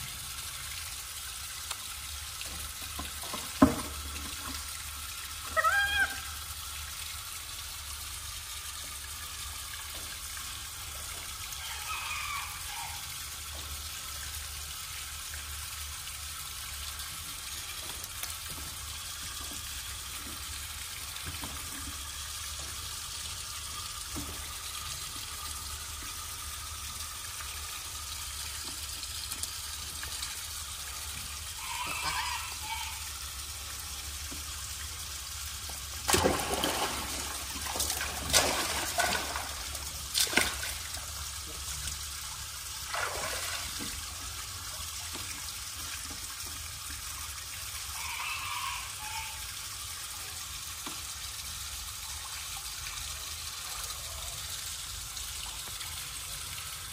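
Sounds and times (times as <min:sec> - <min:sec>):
water trickling into pool: 0:00.0 - 0:56.9
splashing in water: 0:36.1 - 0:41.0, 0:42.9 - 0:44.1.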